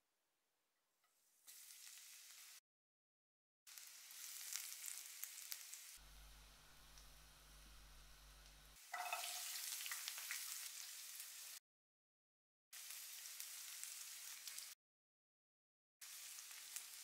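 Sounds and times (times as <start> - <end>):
onion sizzling in hot oil: 1.4 - 2.6, 3.7 - 11.6, 12.8 - 14.8, 16.0 - 17.0
faint hum: 6.0 - 8.8.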